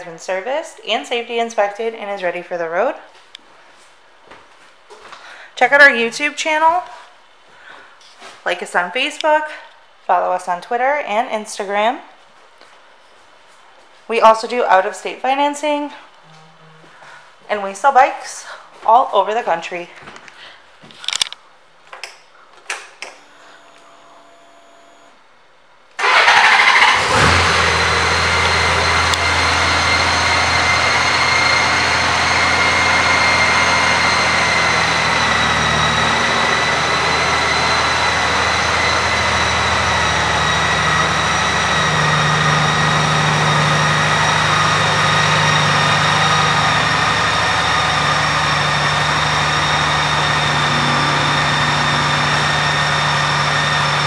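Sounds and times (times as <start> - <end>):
motorcycle engine starting and idling: 26.0 - 54.0
high-pitched whine: 27.8 - 54.0.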